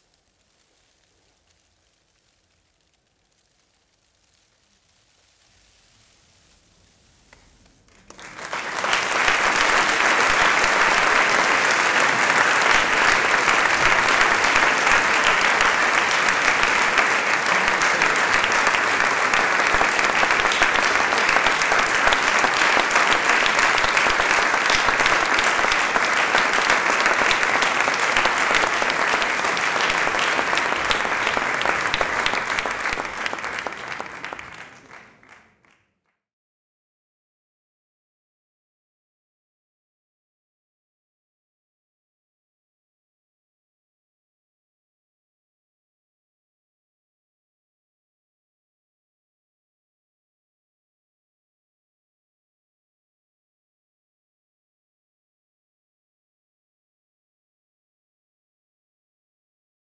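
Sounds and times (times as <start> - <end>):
audience applauding: 7.9 - 35.9.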